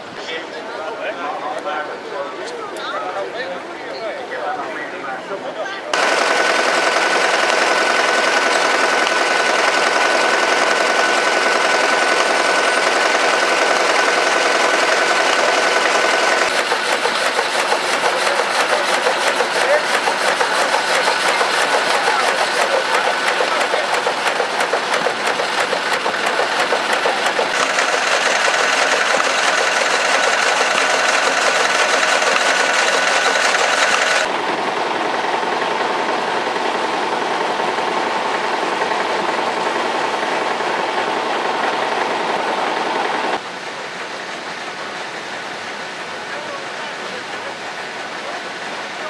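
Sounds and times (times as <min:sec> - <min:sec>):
engine running: 0:05.9 - 0:49.0
old machinery clattering: 0:06.0 - 0:34.3.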